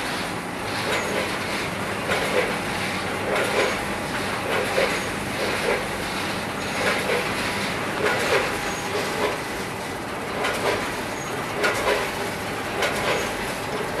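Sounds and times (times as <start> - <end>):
machine rattling: 0.0 - 14.0.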